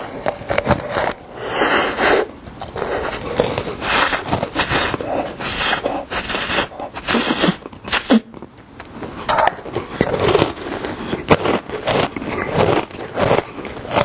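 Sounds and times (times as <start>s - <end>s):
slurping: 0.8s - 8.4s
chewing: 2.5s - 14.0s.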